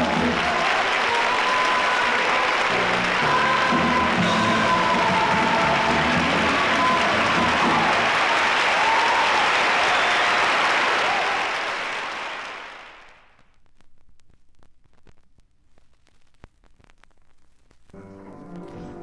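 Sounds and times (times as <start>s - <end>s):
audience applauding: 0.0s - 13.3s
vinyl record surface noise: 11.1s - 19.0s.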